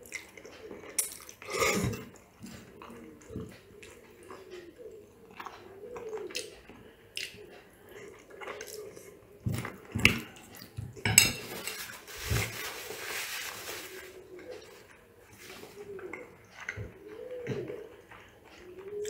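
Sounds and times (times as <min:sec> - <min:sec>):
cutlery clinking into bowl: 0:11.0 - 0:11.9.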